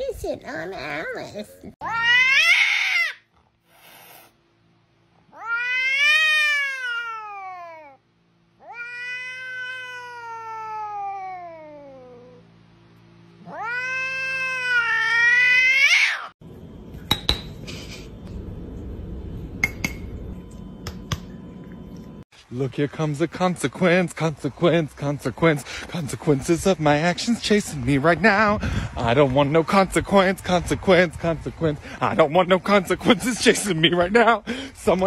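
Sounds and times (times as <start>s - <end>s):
cat yowling: 1.8s - 3.3s, 5.3s - 8.0s, 8.6s - 12.4s, 13.4s - 16.3s.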